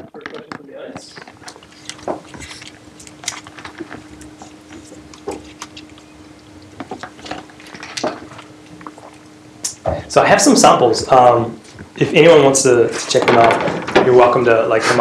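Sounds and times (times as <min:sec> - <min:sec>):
faint steady hum: 0:00.0 - 0:15.0
plastic bottle crinkling: 0:00.2 - 0:09.2.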